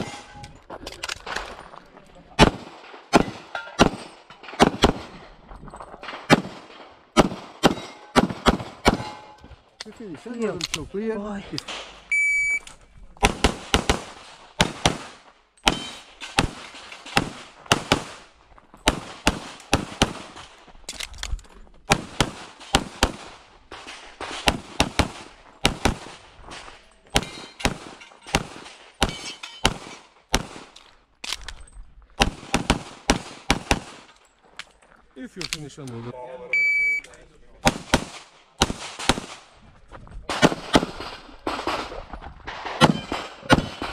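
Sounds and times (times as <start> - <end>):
pistol shots echoing: 2.4 - 5.2, 6.0 - 9.4, 13.2 - 20.4, 21.9 - 26.3, 27.1 - 30.8, 32.2 - 34.1, 37.6 - 39.4, 40.3 - 41.8, 42.6 - 43.9.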